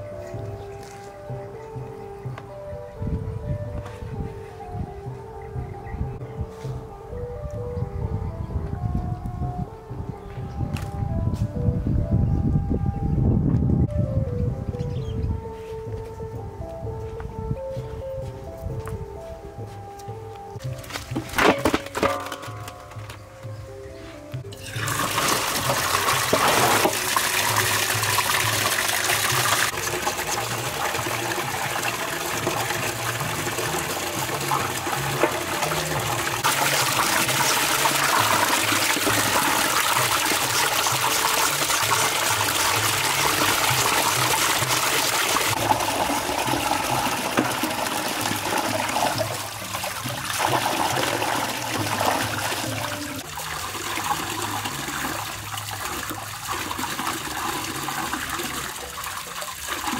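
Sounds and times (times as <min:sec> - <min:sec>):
water splashing into metal basin: 0:20.6 - 0:23.1, 0:24.5 - 0:59.9.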